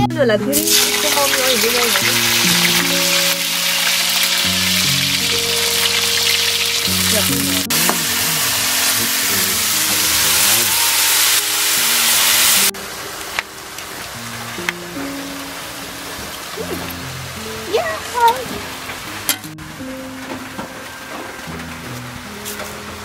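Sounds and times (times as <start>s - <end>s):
background music with held notes: 0.0s - 23.0s
vegetables sizzling in oil: 0.6s - 14.7s.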